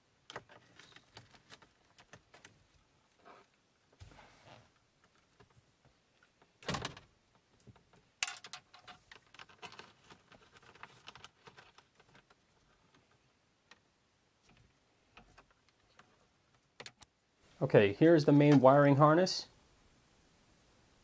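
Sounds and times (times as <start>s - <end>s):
plastic parts rustling: 7.6s - 13.8s.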